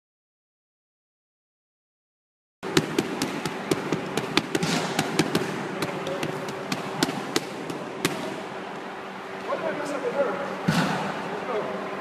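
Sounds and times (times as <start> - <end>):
steady low hum: 2.6 - 12.0
gloves slapping focus mitts: 2.7 - 8.3.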